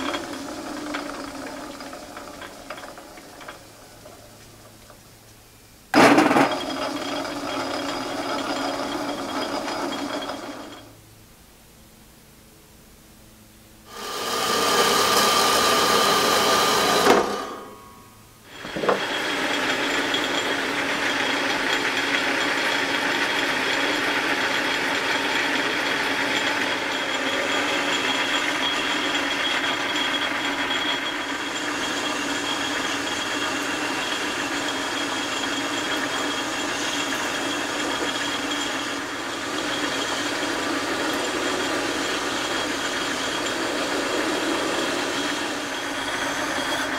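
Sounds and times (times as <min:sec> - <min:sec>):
metal lathe cutting metal: 0:00.0 - 0:04.2, 0:06.0 - 0:10.9, 0:13.9 - 0:17.9, 0:18.5 - 0:46.9
high machine whine: 0:13.8 - 0:46.9.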